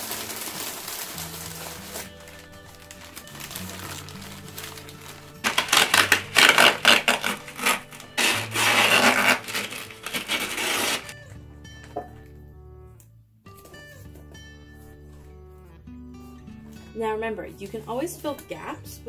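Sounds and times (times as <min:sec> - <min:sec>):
masking tape pulled off roll: 0:00.0 - 0:11.2
newspaper crinkling: 0:00.0 - 0:11.2
background music: 0:00.0 - 0:19.0.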